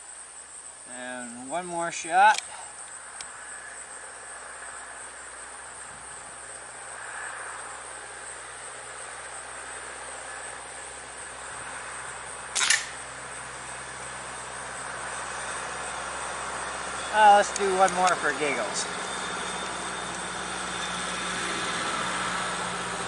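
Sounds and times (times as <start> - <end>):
insect chirring: 0.0 - 23.0
air rifle shot: 12.6 - 13.0.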